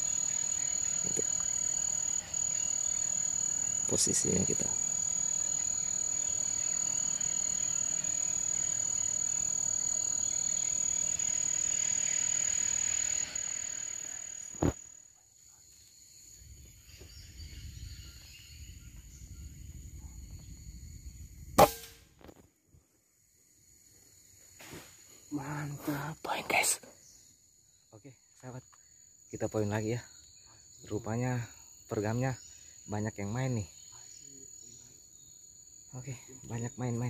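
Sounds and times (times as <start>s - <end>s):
high-pitched insect call: 0.0s - 21.6s, 23.2s - 37.0s
air rifle shot: 21.6s - 21.9s.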